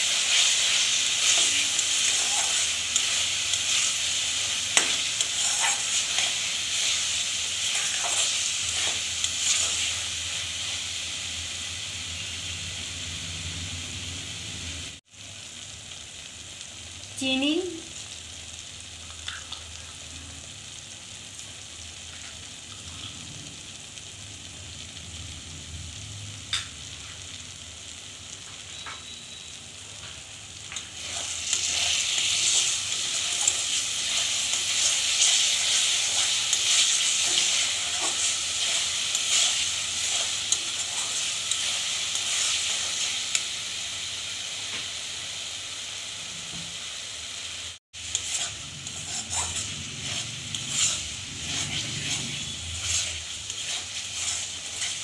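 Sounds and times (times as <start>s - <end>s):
chutney bubbling and sizzling: 0.0s - 55.0s
spatula scraping a pan: 0.3s - 10.0s, 31.0s - 43.0s, 48.0s - 55.0s.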